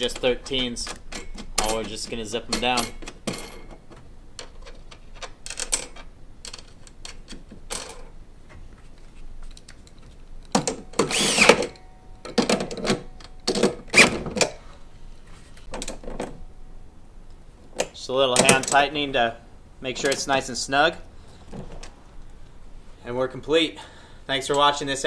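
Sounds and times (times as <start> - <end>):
metal clicks of nuts and washers: 0.0 - 8.1
cordless drill running: 11.1 - 11.7.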